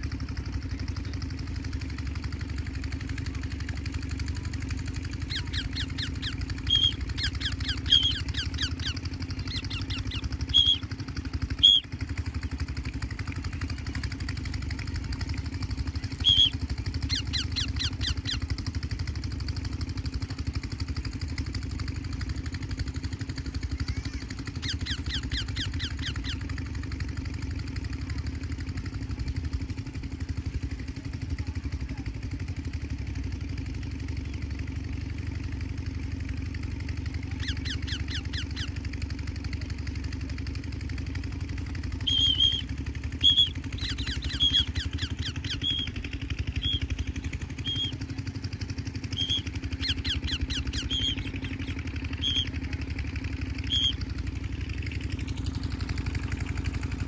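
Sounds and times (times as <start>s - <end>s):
engine humming: 0.0s - 57.0s
bird chattering and squawking: 5.2s - 10.9s, 11.5s - 11.8s, 16.1s - 18.4s, 24.0s - 26.5s, 37.3s - 38.8s, 42.0s - 48.0s, 49.2s - 52.5s, 53.6s - 54.0s.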